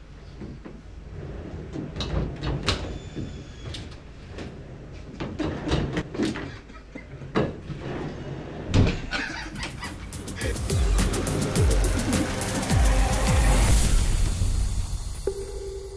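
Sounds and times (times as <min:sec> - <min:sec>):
chair casters rolling on floor: 0:01.0 - 0:10.4.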